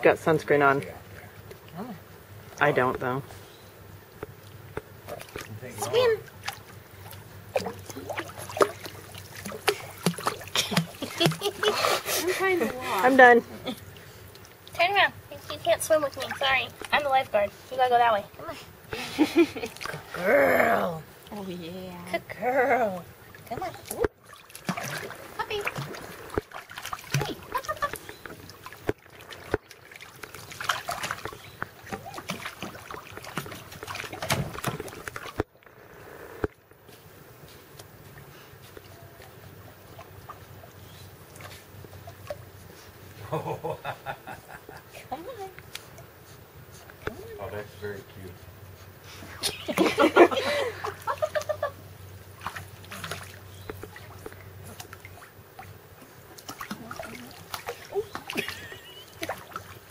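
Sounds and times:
pool water splashing: 0.0s - 59.9s.

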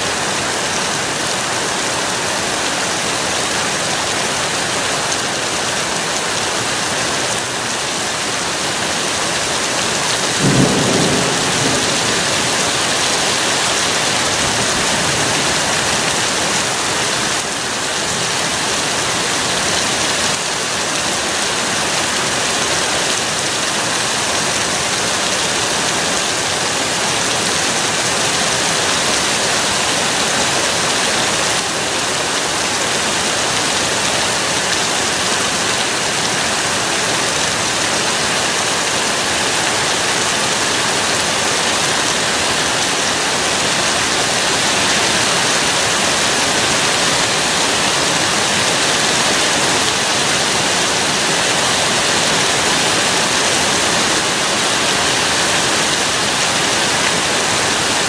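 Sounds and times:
rain falling steadily: 0.0s - 58.0s
thunder clap: 10.3s - 16.5s.

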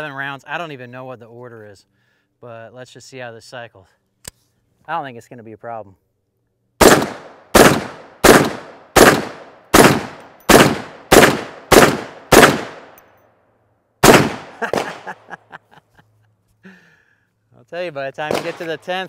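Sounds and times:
rifle shots: 6.8s - 13.0s, 14.0s - 15.2s, 18.2s - 19.0s.

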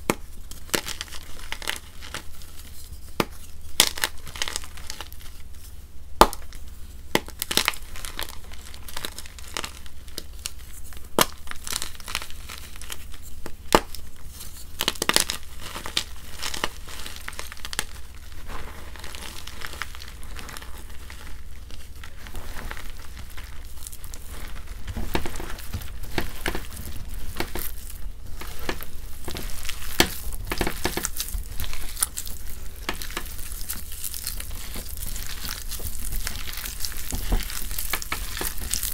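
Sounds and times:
wet chalk crunching: 13.9s - 38.9s.

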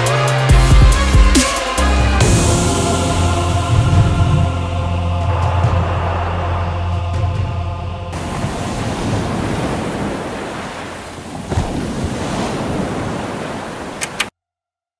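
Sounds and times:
music: 0.0s - 8.2s
steady rushing noise: 2.3s - 14.3s
sharp click: 14.0s - 14.3s.

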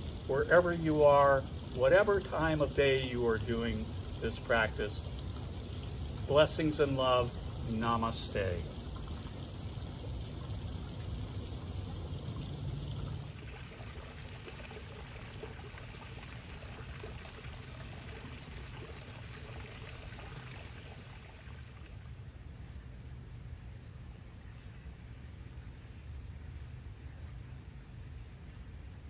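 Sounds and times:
fountain water trickling: 0.0s - 22.3s.

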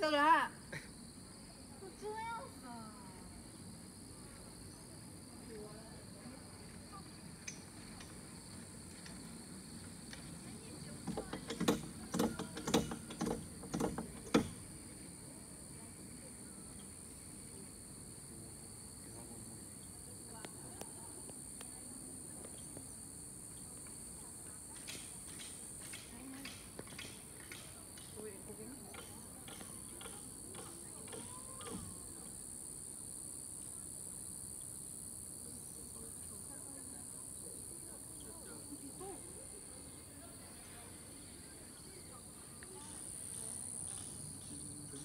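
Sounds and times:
insects droning: 0.0s - 45.0s
sharp clicks and knocks: 11.0s - 14.7s, 24.8s - 28.2s, 28.9s - 32.0s.

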